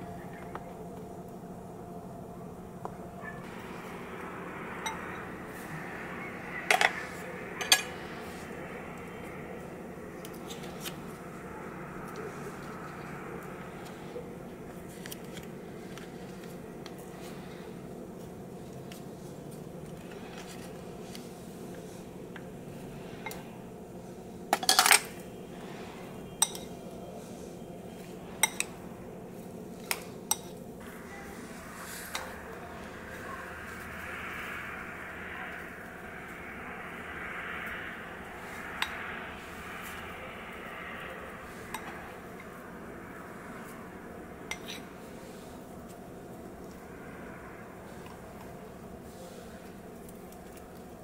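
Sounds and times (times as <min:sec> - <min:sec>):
steady low hum: 0:00.0 - 0:51.0
spoon clinking glass bowl: 0:26.4 - 0:26.7.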